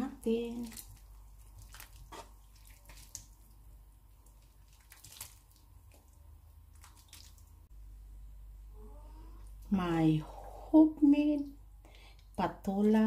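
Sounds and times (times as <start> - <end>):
faint steady hum: 0.0 - 13.0
soup sloshing: 0.4 - 7.7.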